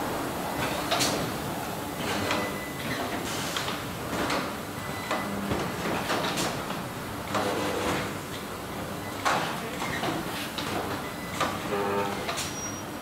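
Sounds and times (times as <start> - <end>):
steady machinery background noise: 0.0 - 13.0.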